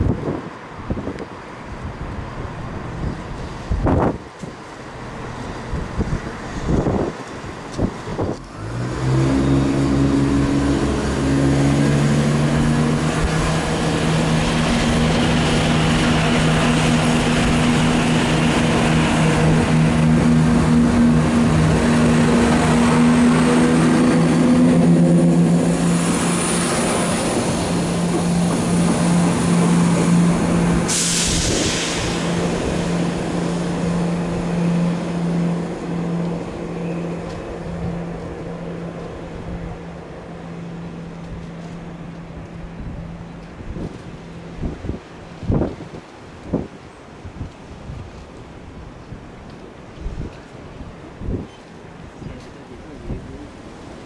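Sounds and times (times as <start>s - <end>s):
diesel train engine accelerating: 0.4s - 46.5s
air hiss burst: 30.8s - 32.9s.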